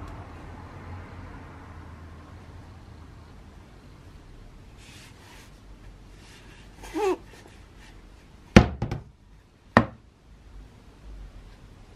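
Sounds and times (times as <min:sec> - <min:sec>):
sledgehammer knocking on workbench: 0:08.6 - 0:09.1, 0:09.8 - 0:10.0.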